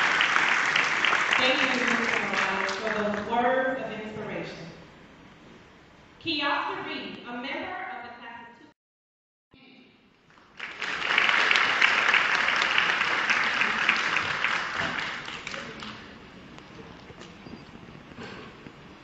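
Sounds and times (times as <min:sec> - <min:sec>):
audience applauding: 0:00.0 - 0:03.3, 0:10.3 - 0:16.2.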